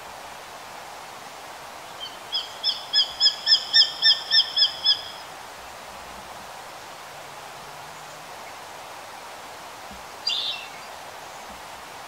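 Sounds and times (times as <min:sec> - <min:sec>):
background hiss: 0:00.0 - 0:12.0
hawk shrill calls: 0:02.3 - 0:05.2.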